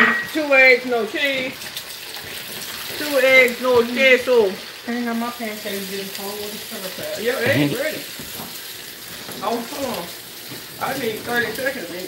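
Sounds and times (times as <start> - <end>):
eggs sizzling in a skillet: 0.0 - 12.0
person speaking: 7.4 - 7.9.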